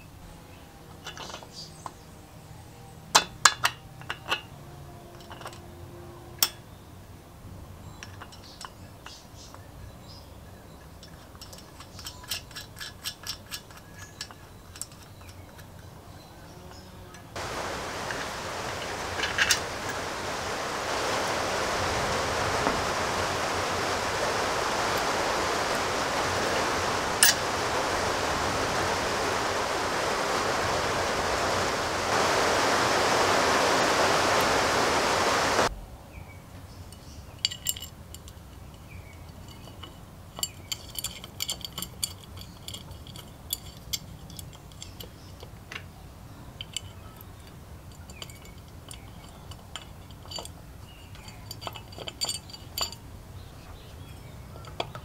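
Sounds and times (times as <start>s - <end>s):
metallic clicks of engine parts: 7.9s - 9.7s, 10.7s - 16.0s, 37.0s - 45.9s, 46.5s - 53.1s, 53.7s - 55.0s
steady hiss: 17.3s - 36.1s.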